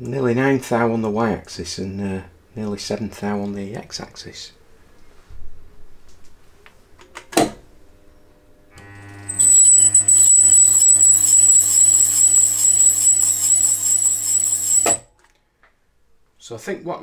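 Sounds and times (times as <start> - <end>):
milling machine spindle whine: 8.9 - 15.0.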